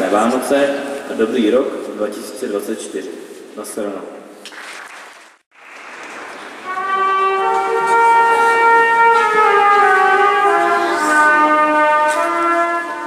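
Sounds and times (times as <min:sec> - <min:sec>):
wind instruments holding long notes: 0:05.9 - 0:13.0.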